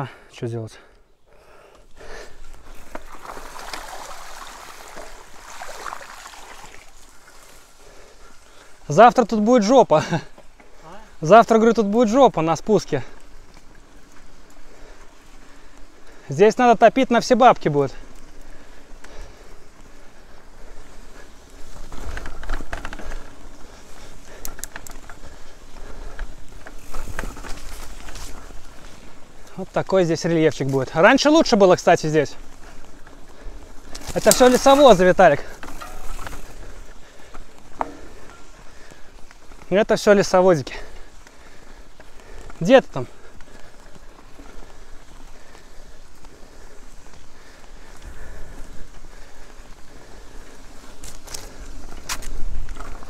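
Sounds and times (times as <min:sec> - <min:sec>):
bike tyres through puddle: 0:02.0 - 0:53.0
water splashing: 0:02.8 - 0:07.6.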